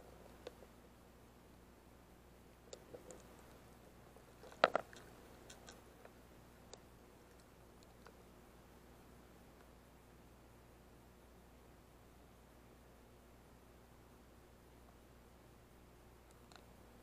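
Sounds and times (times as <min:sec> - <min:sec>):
faint steady hum: 0:00.0 - 0:17.0
underwater clicks and crackles: 0:04.4 - 0:08.1.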